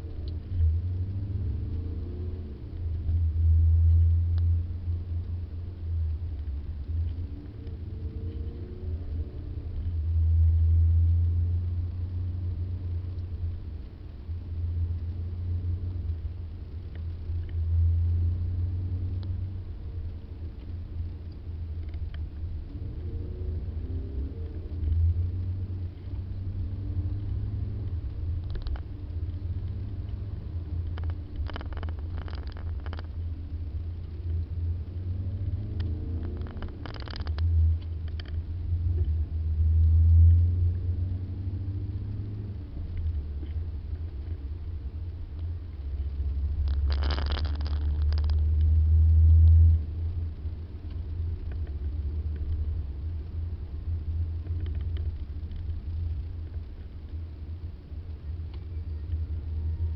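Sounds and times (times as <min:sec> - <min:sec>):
short clicks or rattles: 0:28.4 - 0:28.9, 0:30.8 - 0:33.2, 0:36.2 - 0:38.4, 0:46.6 - 0:48.4.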